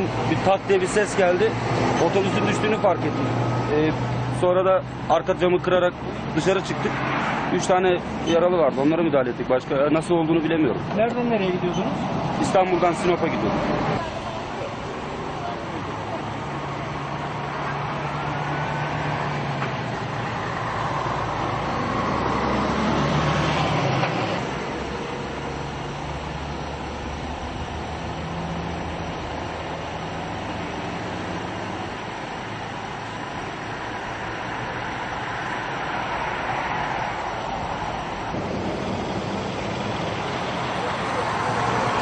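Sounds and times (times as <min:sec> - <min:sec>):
road traffic: 0:00.0 - 0:42.0
vehicle passing close: 0:11.4 - 0:42.0.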